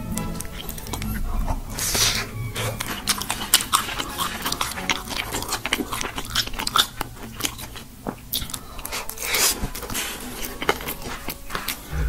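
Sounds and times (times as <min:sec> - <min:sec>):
crunchy chewing: 0:00.0 - 0:12.0.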